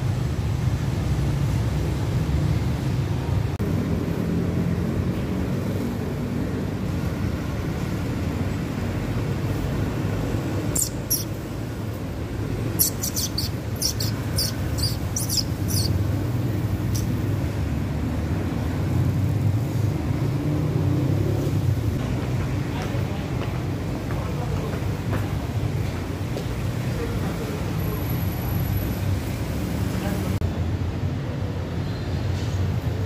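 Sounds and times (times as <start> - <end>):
low rumble of vehicles: 0.0 - 33.0
small bird chirping: 10.6 - 11.5, 12.6 - 17.2.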